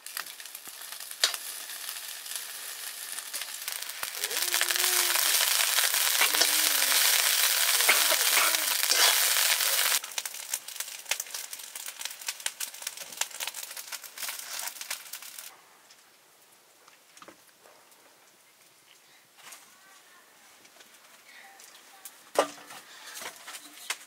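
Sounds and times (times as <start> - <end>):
rice frying in a wok: 0.0 - 15.5
wood fire crackling: 0.0 - 24.0
metal spoon scraping wok: 5.2 - 10.0.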